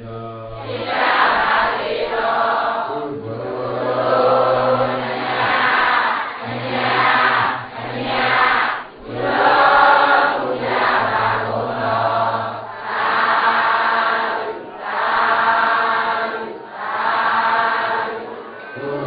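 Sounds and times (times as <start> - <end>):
group chanting in unison: 0.5 - 19.0.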